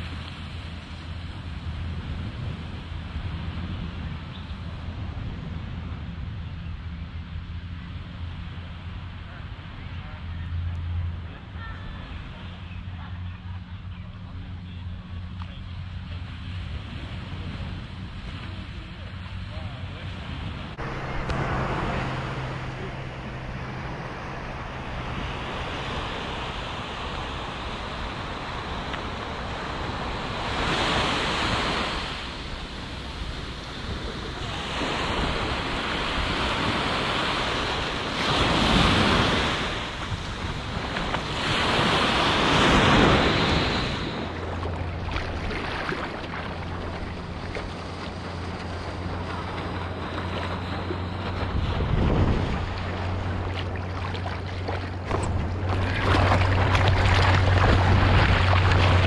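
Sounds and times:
ocean surf rushing water: 15.9s - 59.0s
wind buffeting microphone: 16.5s - 59.0s.

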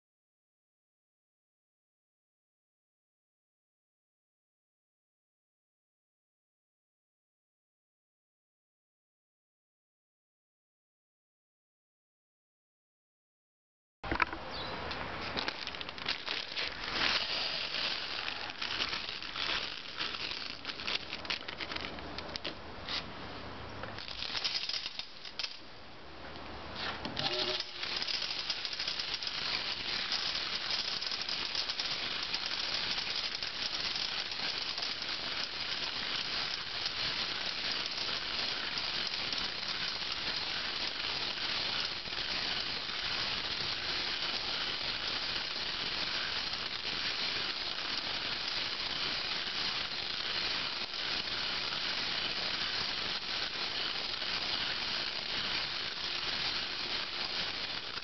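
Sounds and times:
metal nuts and bolts rattling in drum: 15.4s - 22.0s, 24.0s - 25.6s, 27.2s - 58.0s.

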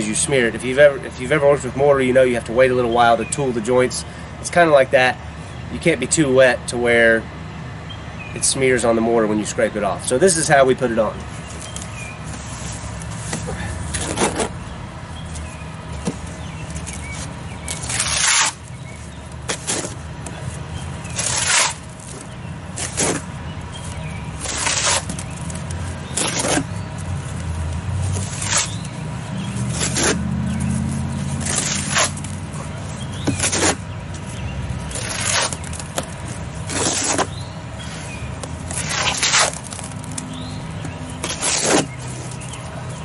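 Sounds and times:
low steady rumble: 4.1s - 43.0s
trowel scraping wet mortar: 12.4s - 14.6s, 17.7s - 18.6s, 19.5s - 20.0s, 21.2s - 22.2s, 22.8s - 23.3s, 24.4s - 25.2s, 26.0s - 26.7s, 28.1s - 28.9s, 29.6s - 32.3s, 33.2s - 33.8s, 34.9s - 35.7s, 36.7s - 37.3s, 38.7s - 39.8s, 41.2s - 42.4s.

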